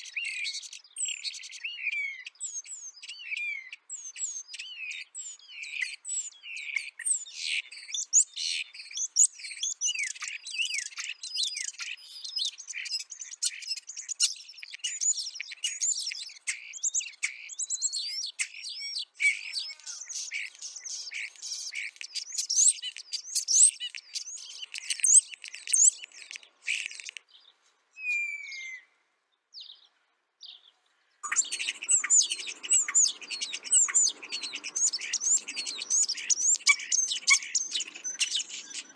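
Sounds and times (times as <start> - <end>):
starlings chattering: 4.3 - 27.3, 31.2 - 38.9
falling bird whistle: 28.0 - 28.9, 31.3 - 38.9.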